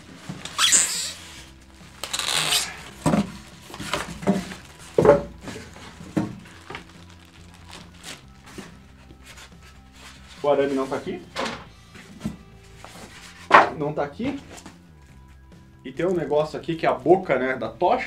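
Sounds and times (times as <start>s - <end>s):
cardboard and plastic rustling: 0.0s - 11.2s
box thuds on table: 3.0s - 6.4s.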